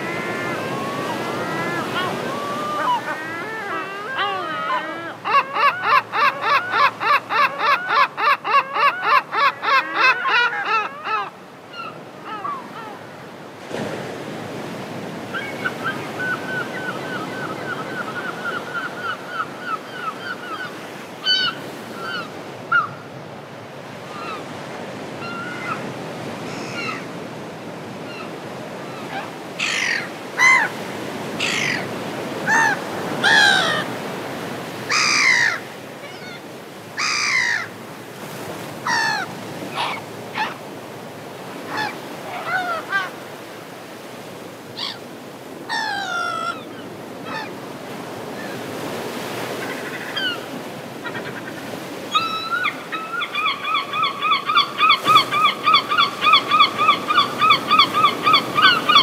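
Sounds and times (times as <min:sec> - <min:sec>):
surf washing: 0:00.0 - 0:08.1, 0:08.9 - 0:59.0
birds calling: 0:00.0 - 0:12.8, 0:29.0 - 0:40.7, 0:44.7 - 0:59.0.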